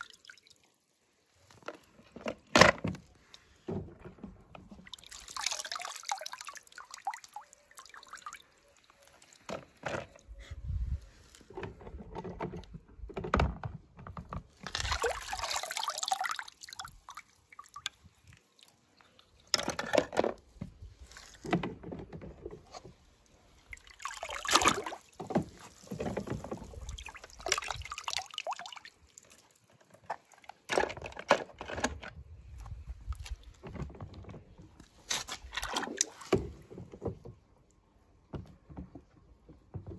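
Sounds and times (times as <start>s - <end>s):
water dripping: 0.0s - 0.9s, 4.8s - 9.4s, 14.7s - 19.5s, 26.7s - 30.5s
water splashing in plastic tub: 0.0s - 9.8s, 13.9s - 19.8s, 20.4s - 31.6s, 33.0s - 37.7s.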